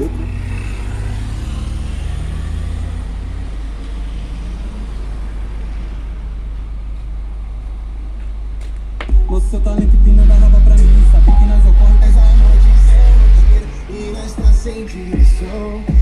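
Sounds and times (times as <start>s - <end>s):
deep bass from subwoofers: 0.0s - 0.3s, 8.9s - 16.0s
higher bass note: 9.1s - 14.6s.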